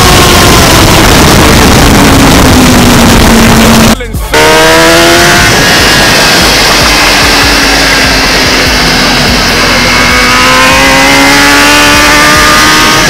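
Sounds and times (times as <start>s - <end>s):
loud wind rush: 0.0s - 13.0s
motorcycle engine at high revs: 0.0s - 13.0s.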